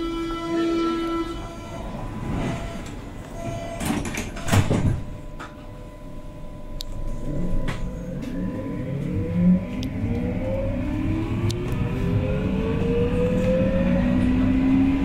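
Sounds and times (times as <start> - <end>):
sliding train doors closing: 0.8 - 5.7
train whine rising: 7.0 - 15.0.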